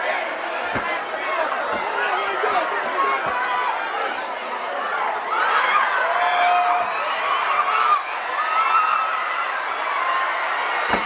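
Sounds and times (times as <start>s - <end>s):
crowd shouting and cheering: 0.0s - 11.0s
single thud: 0.7s - 1.0s, 1.7s - 2.0s.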